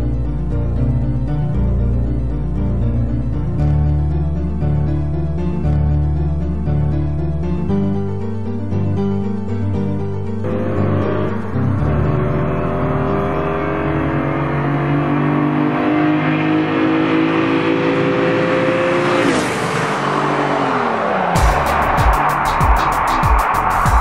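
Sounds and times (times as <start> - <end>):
sports car engine accelerating past: 10.4 - 22.4.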